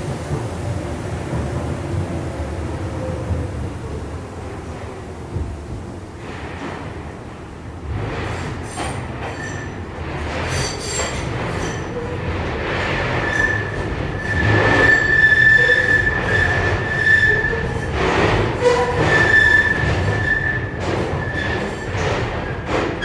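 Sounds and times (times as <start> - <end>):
railcar running rumble: 0.0 - 23.0
high wheel squeal: 13.2 - 18.0, 18.6 - 22.0.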